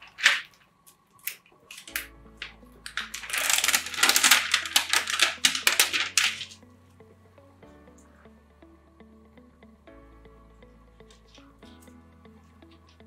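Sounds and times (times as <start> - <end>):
plastic packaging crinkling: 0.0 - 0.6, 1.3 - 6.6
soft background music: 0.0 - 13.0.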